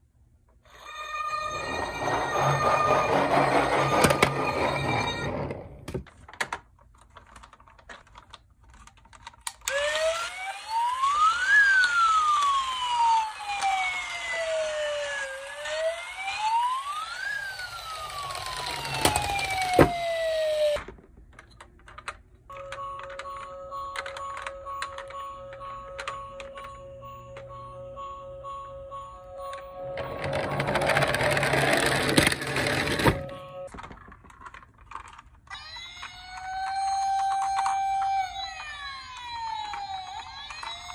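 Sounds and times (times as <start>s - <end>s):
toy siren wailing: 0.7s - 5.6s, 9.7s - 20.8s, 35.5s - 40.9s
toys clicking when handled: 6.1s - 9.9s, 33.7s - 40.9s.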